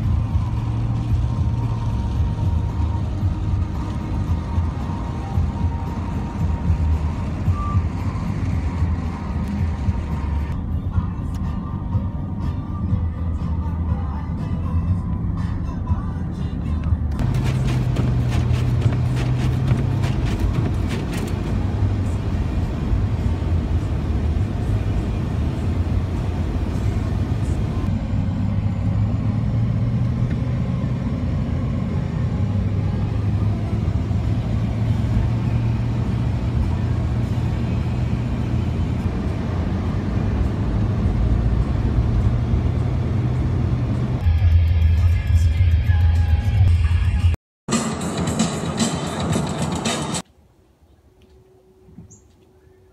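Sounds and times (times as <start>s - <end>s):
background music: 0.0s - 27.8s, 44.2s - 50.2s
engine and road noise hum: 0.0s - 52.9s.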